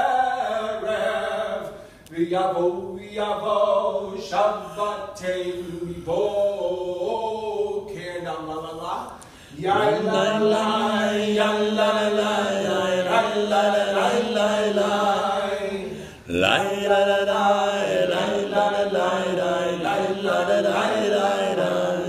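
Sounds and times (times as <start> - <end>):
man chanting a prayer: 2.2 - 10.6, 15.5 - 21.8.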